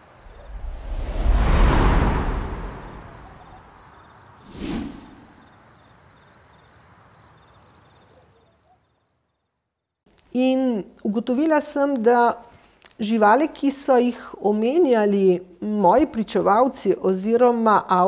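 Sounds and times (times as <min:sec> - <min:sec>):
cricket-like chirping trill: 0:00.0 - 0:10.1
low whooshing: 0:00.2 - 0:03.8.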